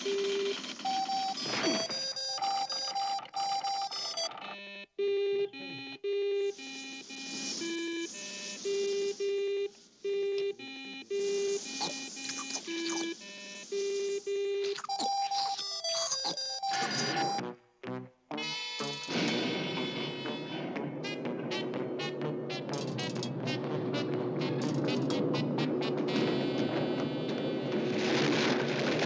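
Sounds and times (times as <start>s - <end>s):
electronic robot beeps: 5.5s - 9.2s, 10.4s - 17.4s.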